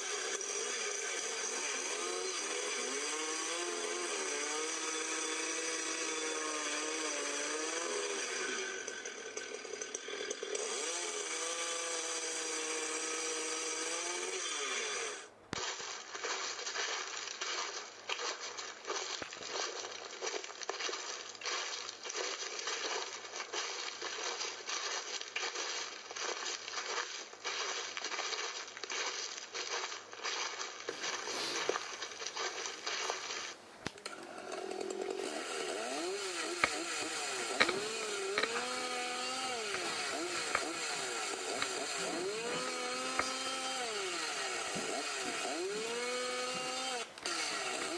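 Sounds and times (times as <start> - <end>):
chainsaw engine revving: 0.0 - 15.8, 30.9 - 47.9.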